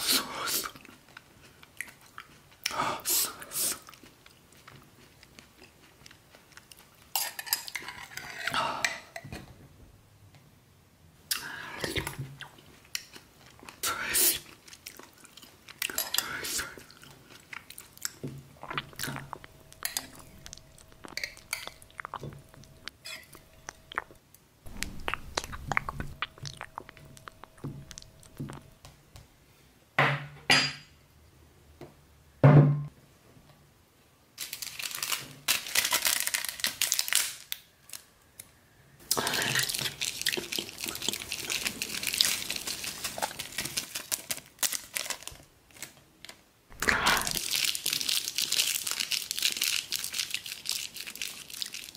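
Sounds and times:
metal spoon scraping glass jar: 23.0s - 23.4s
plastic packet rustling: 34.4s - 38.0s, 39.3s - 46.4s, 47.1s - 51.9s.

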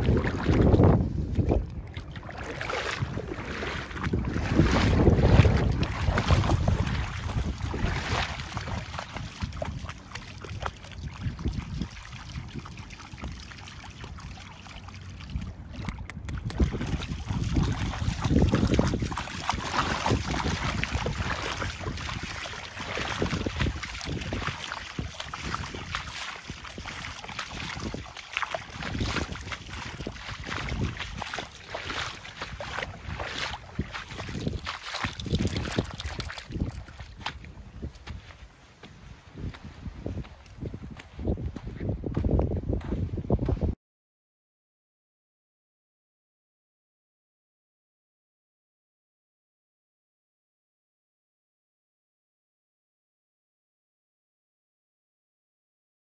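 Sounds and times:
dog splashing through water: 0.0s - 38.2s
wind buffeting microphone: 0.0s - 43.8s.

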